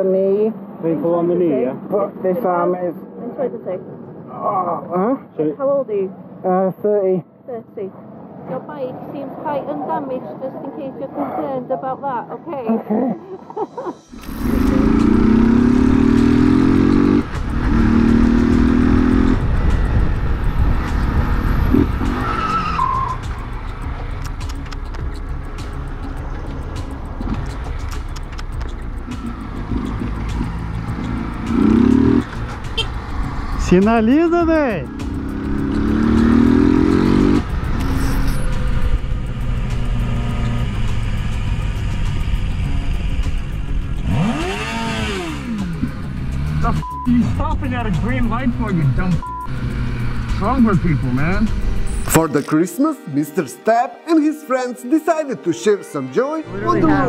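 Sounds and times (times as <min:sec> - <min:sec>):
road and wind noise: 0:00.0 - 0:52.9, 0:56.5 - 0:57.0
motorcycle engine accelerating: 0:14.1 - 0:22.4, 0:26.1 - 0:52.3
wind rumble on microphone: 0:19.4 - 0:22.1.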